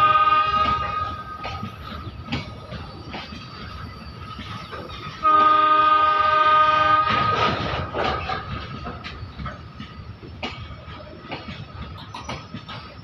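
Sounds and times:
locomotive horn: 0.0 - 1.4, 5.2 - 7.9
train wheels clacking over rail joints: 0.0 - 13.0.

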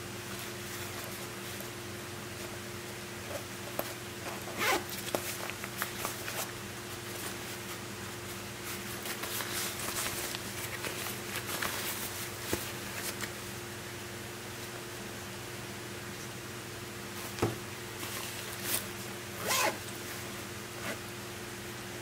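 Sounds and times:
backpack zipper zipping: 4.5 - 4.9, 19.4 - 19.8.

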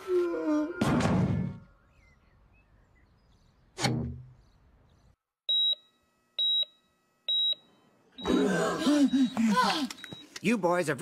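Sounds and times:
cartoon heart monitor beeps: 8.2 - 10.3.

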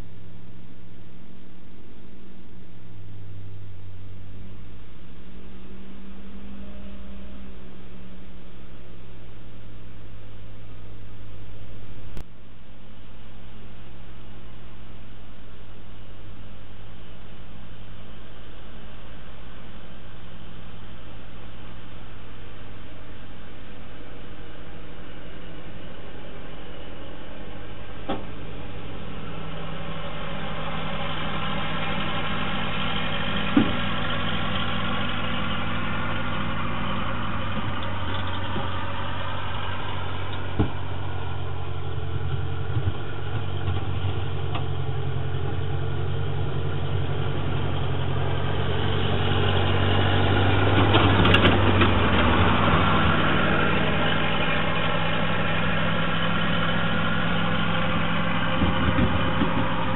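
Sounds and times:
tractor engine running: 15.6 - 59.9.

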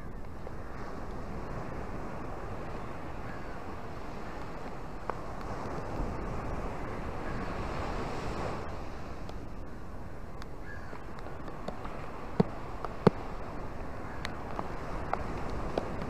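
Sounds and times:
surf washing on beach: 0.0 - 16.0.

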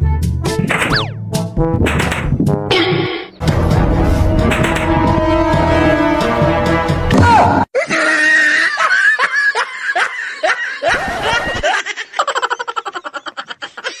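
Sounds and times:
squealing laughter sound effect: 7.8 - 14.0.

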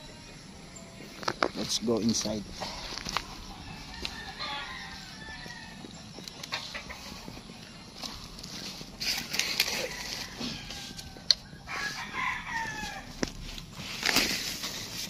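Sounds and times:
rooster crowing: 2.7 - 7.3, 9.2 - 13.6
rustling: 6.5 - 15.0.

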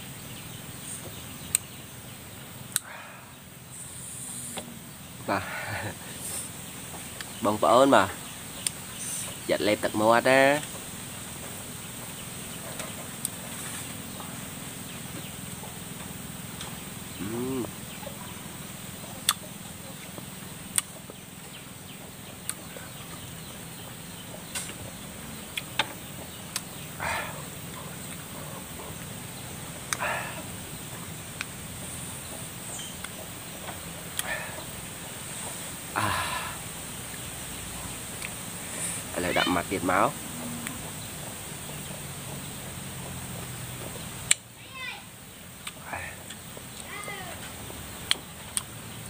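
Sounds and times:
low background hum: 0.0 - 49.0
mouth clicks: 2.7 - 3.0, 19.0 - 21.2, 22.3 - 23.5, 25.4 - 29.1, 29.7 - 31.6, 32.8 - 34.9, 38.1 - 39.1, 44.2 - 44.5, 45.6 - 46.9, 48.0 - 48.7
mouth eating sounds: 17.1 - 18.1, 19.2 - 19.5, 29.8 - 30.6, 34.1 - 34.8, 38.1 - 39.1, 45.6 - 46.5
man humming mmm: 17.2 - 17.9, 29.9 - 30.6, 34.2 - 34.8, 35.9 - 36.7.

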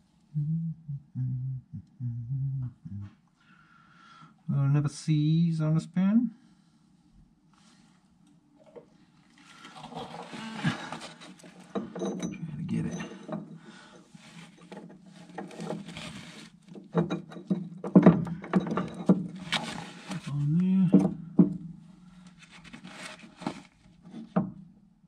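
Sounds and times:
metal tools clinking and scraping: 10.4 - 20.3.

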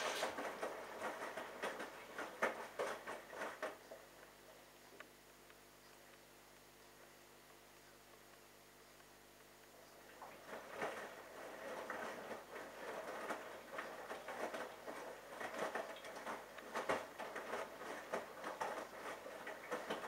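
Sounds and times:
wet laundry sloshing: 0.0 - 3.9, 10.1 - 20.0.

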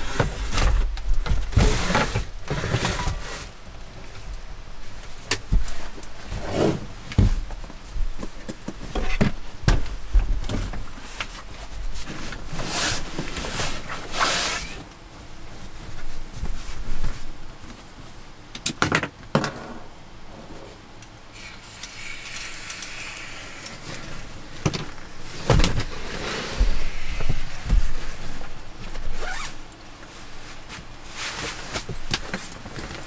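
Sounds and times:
fabric sack rustling: 25.0 - 33.0
zipper: 29.1 - 29.6.

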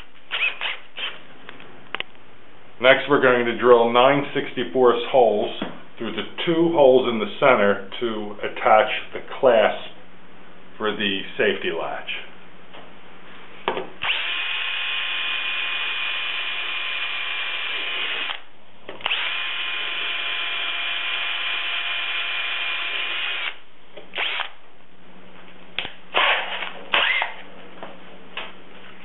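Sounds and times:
cordless drill boring through metal: 0.3 - 1.2, 14.0 - 18.4, 19.0 - 23.6, 24.2 - 24.5, 26.2 - 27.3.

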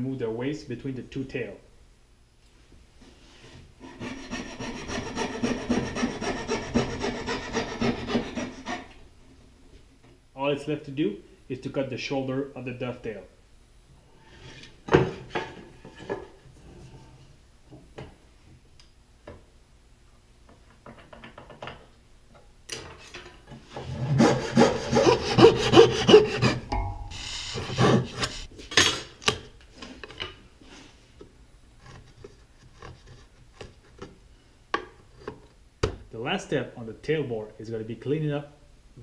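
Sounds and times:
hand saw cutting wood: 3.8 - 8.9, 23.7 - 26.7, 27.5 - 28.5.

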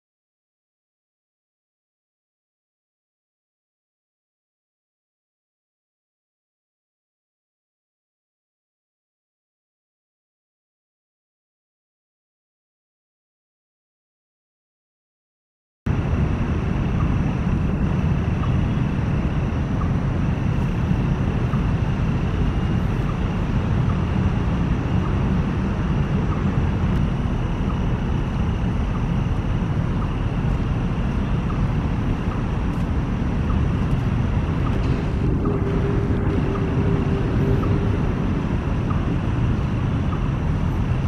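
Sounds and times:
low rumble of road traffic: 15.9 - 41.0
faint high steady tone: 16.0 - 41.0.

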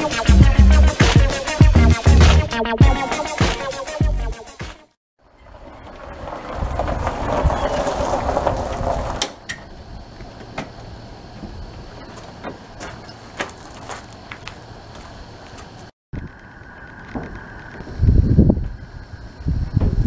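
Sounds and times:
footsteps on gravel: 1.0 - 2.5, 5.6 - 9.2, 10.1 - 15.9
golf cart tyres crunching gravel: 5.2 - 18.0.

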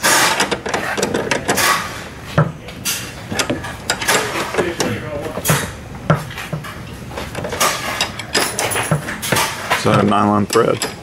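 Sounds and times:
wrenches clinking on a bolt: 7.3 - 11.0.

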